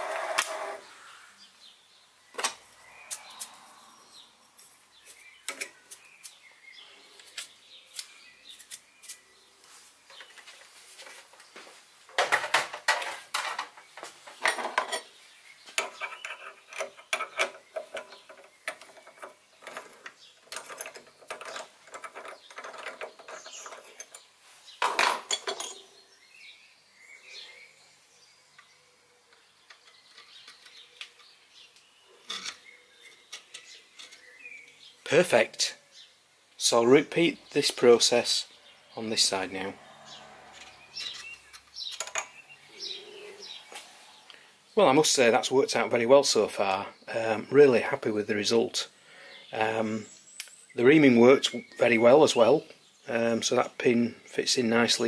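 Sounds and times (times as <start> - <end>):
metallic clinks and scrapes: 15.8 - 24.3, 39.8 - 42.4
metal parts clattering: 15.8 - 25.8.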